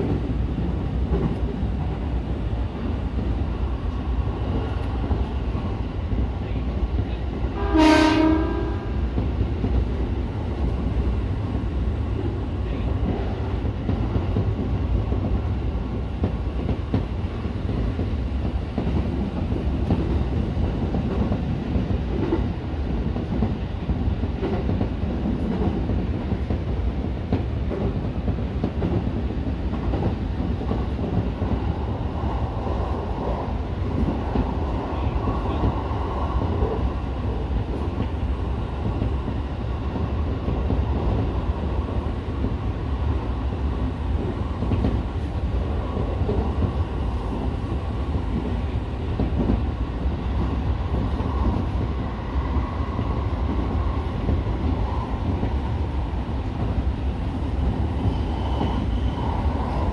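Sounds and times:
train wheels rumbling on rail: 0.0 - 59.9
train horn: 7.5 - 9.0.

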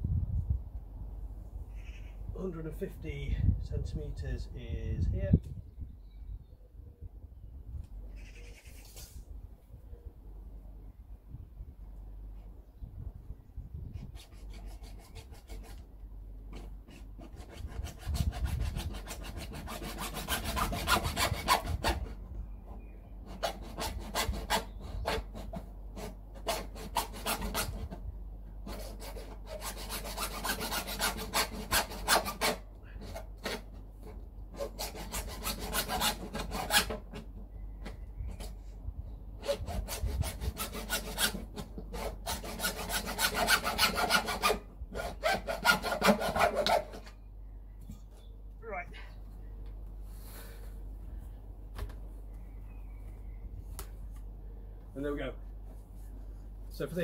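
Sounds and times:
hacksaw cutting plastic pipe: 16.5 - 22.2, 23.3 - 28.0, 28.6 - 37.3, 39.4 - 47.1.

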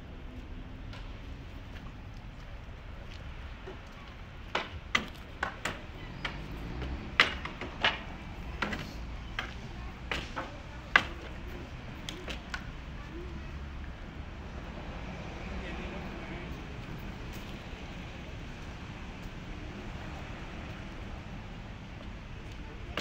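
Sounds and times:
pry bar and hammer knocking wood: 4.5 - 11.3.

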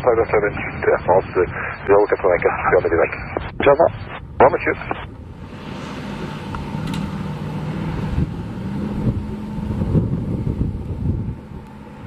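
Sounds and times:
jet engines rumbling: 0.0 - 12.0
wind on microphone: 7.8 - 11.6.

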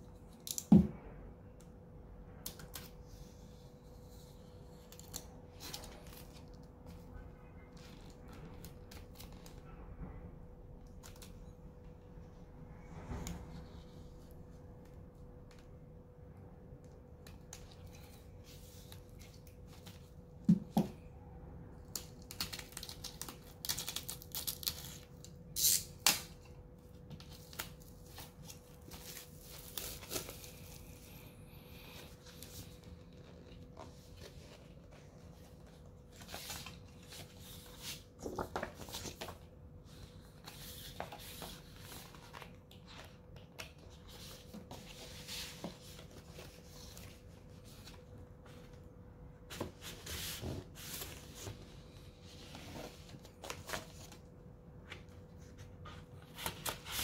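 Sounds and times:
plastic wrapping crinkling and tearing: 21.9 - 26.3.

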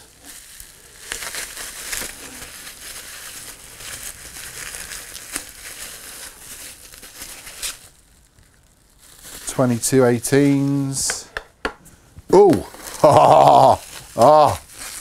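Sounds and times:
bubble wrap crinkling: 0.0 - 11.3, 12.1 - 15.0.

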